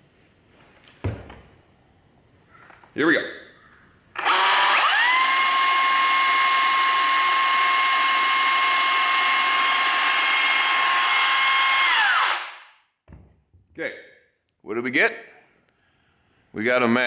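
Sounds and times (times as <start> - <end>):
electric chainsaw whining: 4.2 - 12.5.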